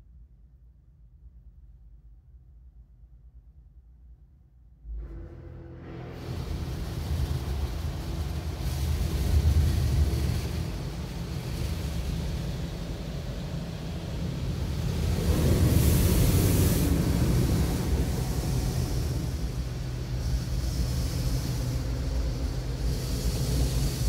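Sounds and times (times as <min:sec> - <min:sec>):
car wash low rumble: 0:04.8 - 0:24.0
water hissing against glass: 0:06.2 - 0:24.0.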